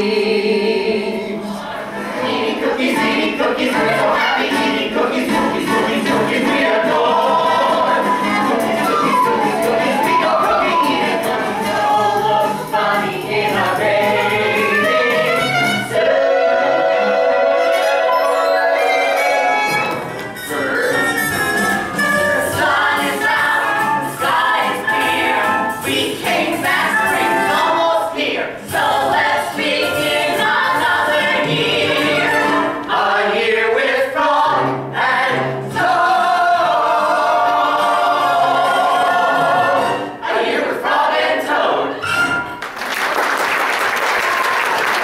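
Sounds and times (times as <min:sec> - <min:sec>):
cast singing show tunes: 0:00.0 - 0:42.4
audience applause: 0:42.6 - 0:45.0.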